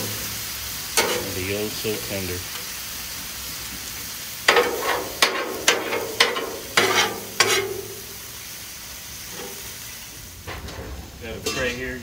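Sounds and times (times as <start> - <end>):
food sizzling: 0.0 - 12.0
metal spatula striking griddle: 1.0 - 1.4, 4.5 - 8.2.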